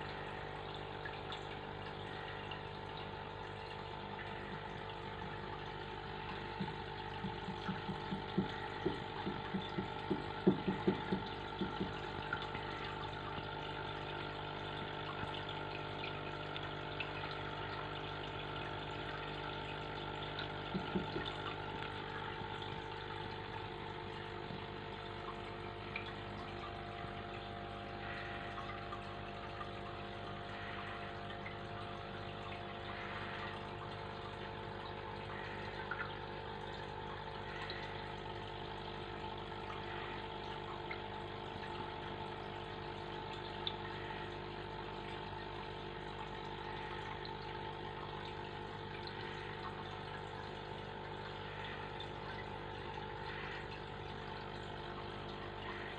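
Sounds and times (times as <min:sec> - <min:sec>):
aquarium pump humming: 0:00.0 - 0:55.9.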